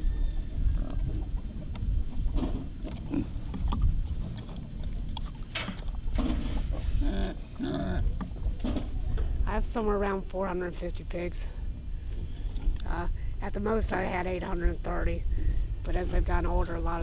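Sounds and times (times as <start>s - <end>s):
steady low rumble: 0.0s - 17.0s
pigs grunting: 2.4s - 4.6s, 6.2s - 8.3s.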